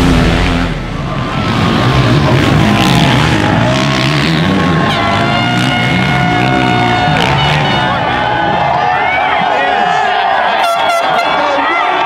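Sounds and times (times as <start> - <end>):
motocross bike engine revving: 0.0 - 8.9.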